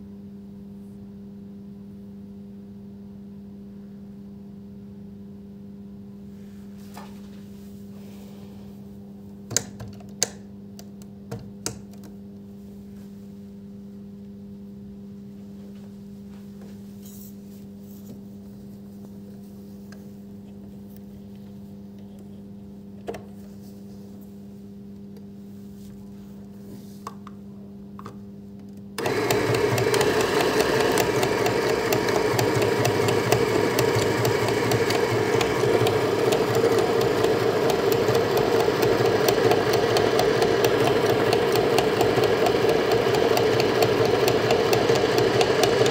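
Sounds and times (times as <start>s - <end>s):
sewing machine stitching: 29.0s - 45.9s.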